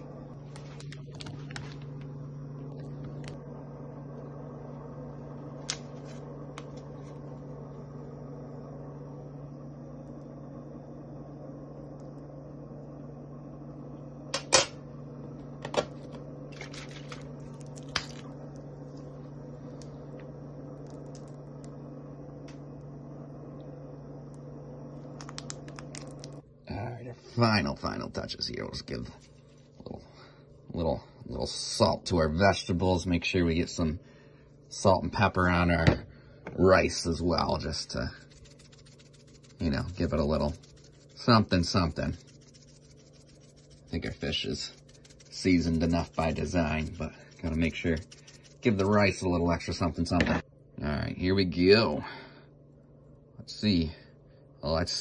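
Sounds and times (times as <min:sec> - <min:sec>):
kitchen appliance humming: 0:00.0 - 0:55.0.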